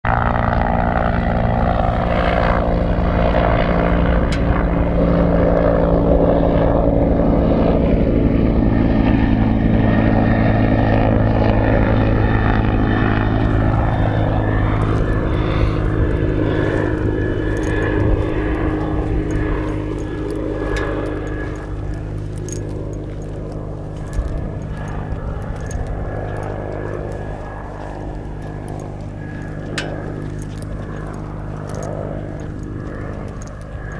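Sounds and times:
propeller aircraft engine drone: 0.0 - 33.9.

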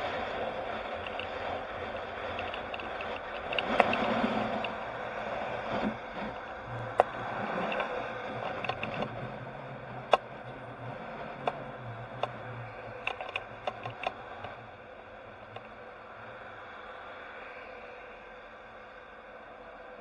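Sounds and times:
low engine hum: 0.0 - 20.0
wind and road noise: 0.0 - 20.0
sharp clicks and rattles: 0.7 - 4.8, 6.9 - 9.2, 13.0 - 14.6.

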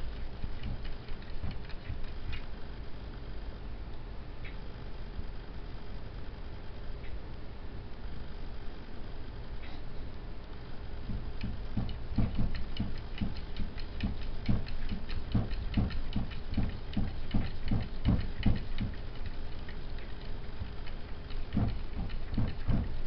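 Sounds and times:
cat paws tapping on mirror: 11.1 - 19.8, 21.3 - 23.0.

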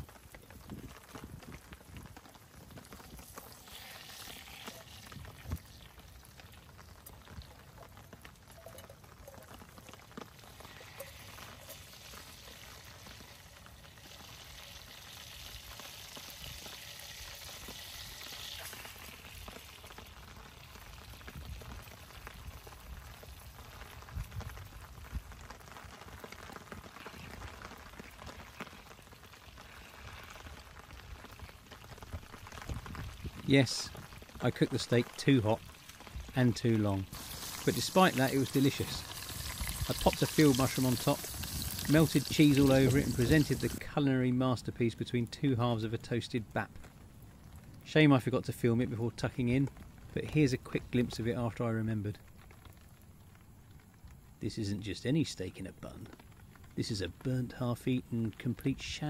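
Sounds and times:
fat sizzling in a metal can: 2.8 - 7.6, 8.5 - 24.1, 35.1 - 43.8.

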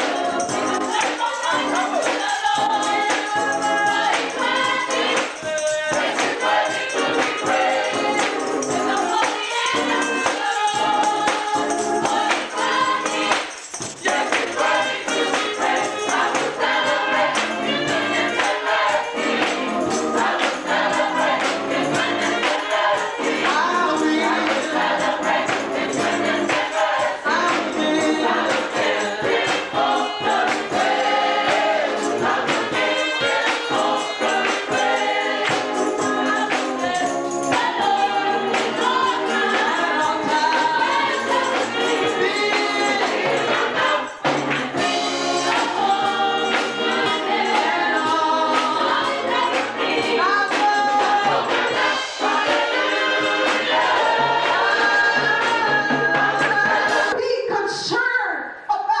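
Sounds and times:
hand clapping: 0.0 - 7.5, 8.1 - 10.6, 11.3 - 16.7, 17.4 - 18.7, 19.3 - 21.8, 24.4 - 25.9, 26.5 - 27.8, 28.5 - 28.9, 30.5 - 30.8, 32.5 - 35.9, 41.5 - 44.9, 45.5 - 45.9, 49.5 - 51.2
gospel choir singing: 0.0 - 57.2.

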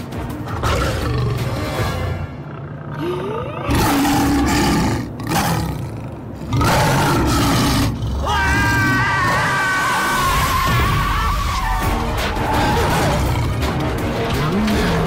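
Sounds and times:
lion roaring: 0.5 - 1.6, 2.5 - 10.0, 12.5 - 15.0.

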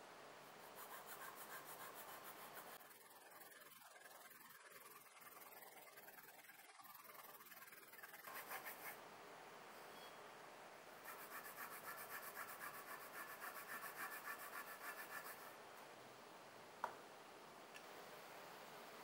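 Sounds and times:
cloth rubbing on knife blade: 0.6 - 9.0, 11.0 - 15.6.

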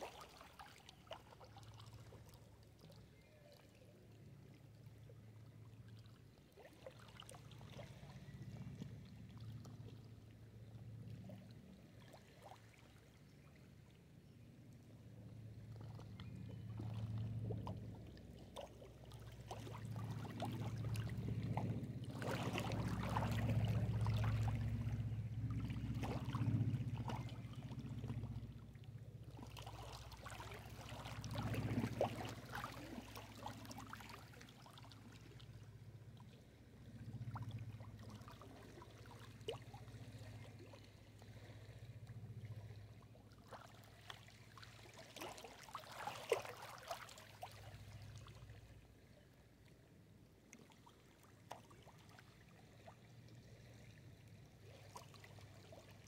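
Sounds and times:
low rumble: 19.7 - 33.2
waves lapping on rocky shore: 29.6 - 35.2.

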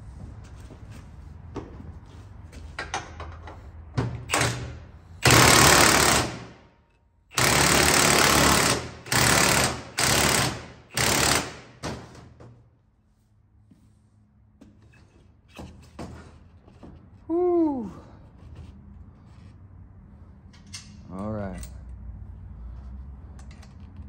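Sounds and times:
impact wrench hammering: 4.0 - 6.6, 7.3 - 12.3.

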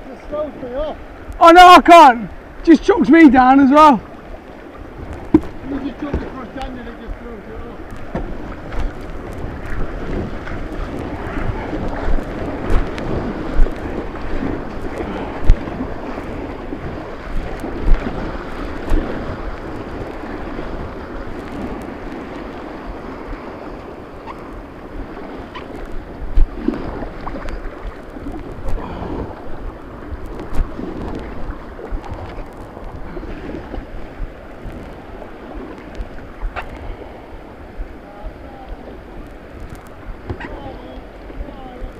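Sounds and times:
river rapids rushing: 0.0 - 30.1
water splashes: 0.0 - 41.9
wind buffeting microphone: 0.0 - 41.9.

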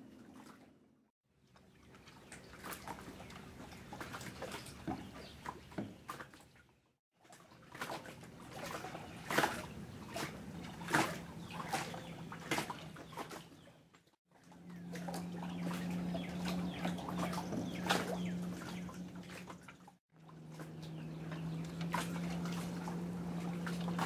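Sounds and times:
water lapping and splashing: 0.0 - 24.0
steady low hum: 14.4 - 24.0.

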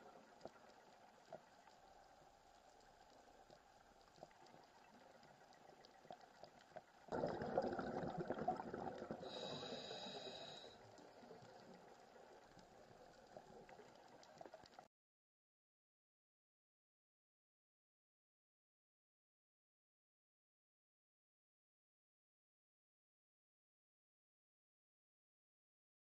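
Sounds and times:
small ticks: 0.0 - 7.1
faint underwater hiss: 0.0 - 14.9
exhaled breath bubbling underwater: 7.1 - 11.3.

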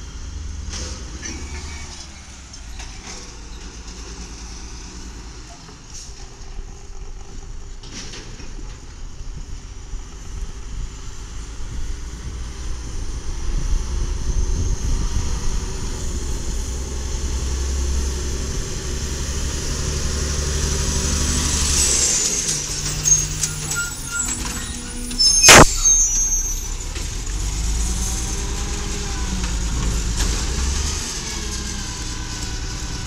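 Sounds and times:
truck engine drone: 0.0 - 33.0
high engine whine: 9.4 - 30.5.

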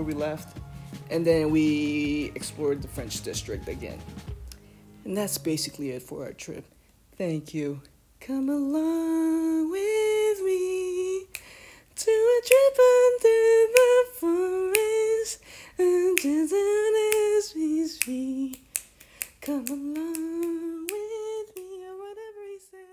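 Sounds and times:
person humming: 12.0 - 22.9.

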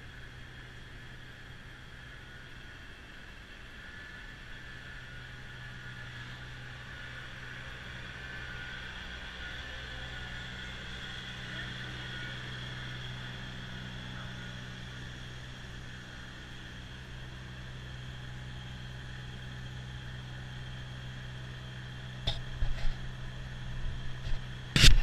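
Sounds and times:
snowblower spinning whine: 0.0 - 25.0
tractor diesel engine running: 0.0 - 25.0
sharp clicks and knocks: 22.2 - 23.0.

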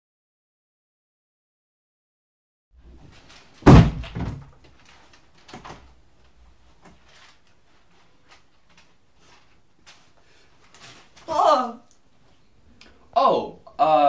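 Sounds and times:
faint rustling: 2.8 - 11.3
door banging shut: 3.6 - 4.5.

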